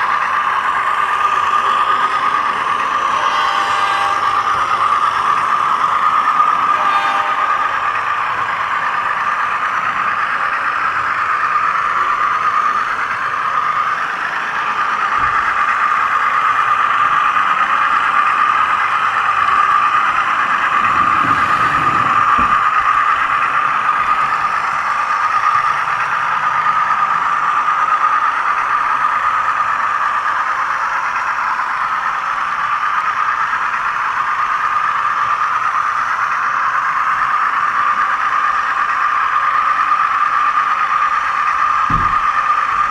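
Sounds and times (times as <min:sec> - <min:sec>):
model train running gear hum: 0:00.0 - 0:42.9
low rumble: 0:19.5 - 0:24.6.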